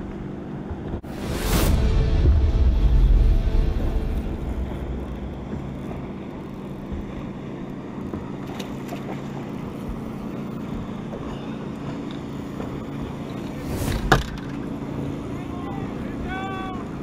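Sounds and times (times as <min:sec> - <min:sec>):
boat motor humming: 0:00.0 - 0:17.0
wind on microphone: 0:00.7 - 0:08.4, 0:12.4 - 0:15.3.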